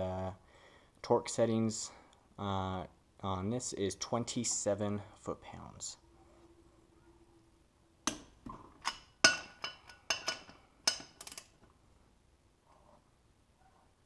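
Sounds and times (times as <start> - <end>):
torque wrench clicking: 10.9 - 11.5.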